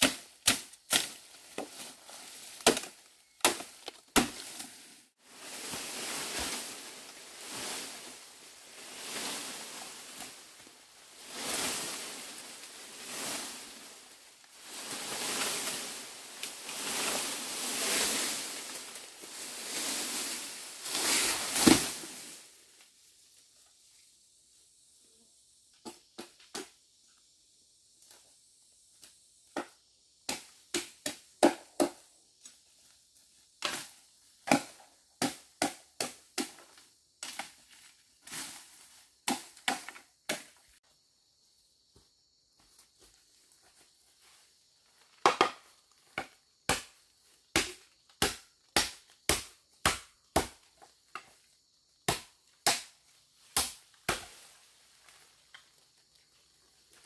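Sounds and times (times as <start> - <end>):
hand tool striking bamboo: 0.0 - 1.8, 2.6 - 4.6, 45.2 - 45.6, 47.6 - 50.6, 52.1 - 52.9, 53.6 - 54.4.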